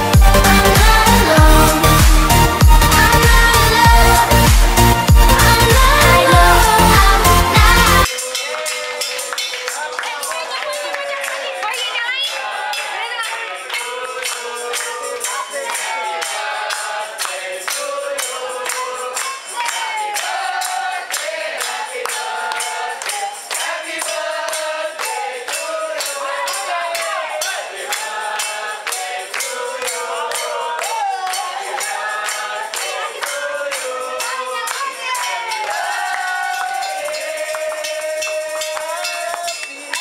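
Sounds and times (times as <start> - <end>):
group of people singing: 0.0 - 40.0
tambourine beat: 0.0 - 40.0.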